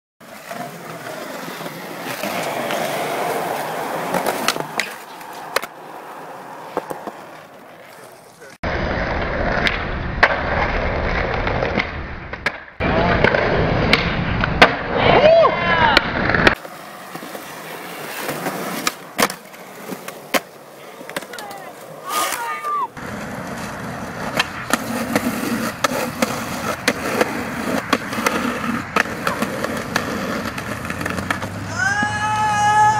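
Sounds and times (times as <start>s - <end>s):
skateboard clacking: 0.2s - 8.5s, 16.4s - 32.2s
skateboard wheels rolling on concrete: 0.2s - 32.9s.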